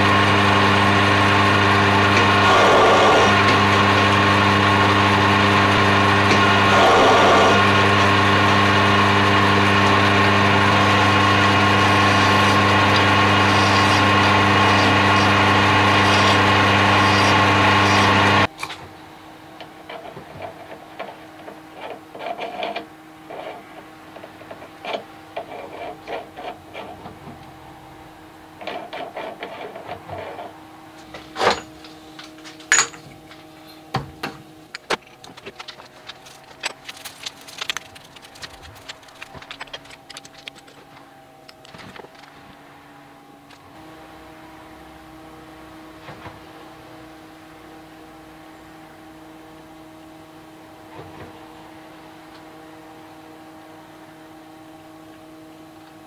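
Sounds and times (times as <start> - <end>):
metal lathe motor hum: 0.0 - 56.0
tools knocking: 32.6 - 33.2.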